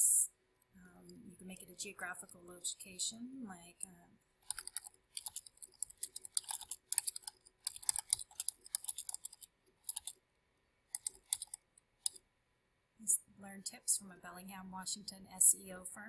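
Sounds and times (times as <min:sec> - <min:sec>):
computer keyboard typing: 0:04.4 - 0:10.2, 0:10.9 - 0:12.2.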